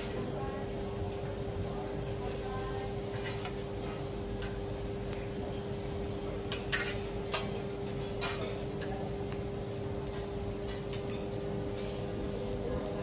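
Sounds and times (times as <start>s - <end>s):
metal utensils clicking on griddle: 0.0s - 0.4s, 2.3s - 12.0s
steady hum: 0.0s - 13.0s.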